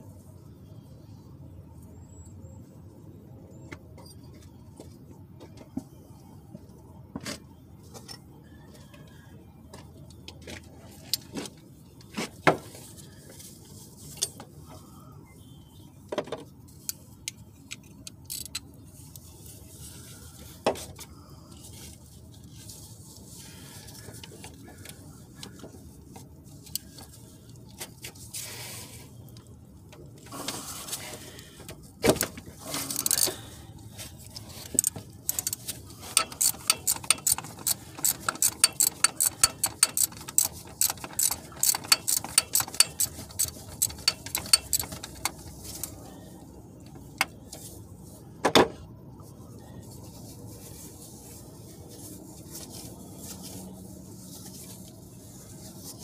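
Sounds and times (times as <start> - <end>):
ratchet wrench clicking: 17.3 - 18.6, 32.9 - 33.4, 34.8 - 46.0.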